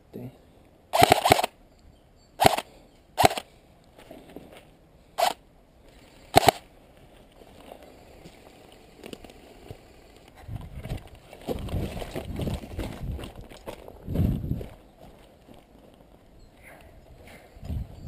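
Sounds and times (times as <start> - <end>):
airsoft rifle shots: 0.9 - 1.6, 2.4 - 3.5, 5.2 - 5.4, 6.3 - 6.6
movement through dry grass: 3.3 - 17.9.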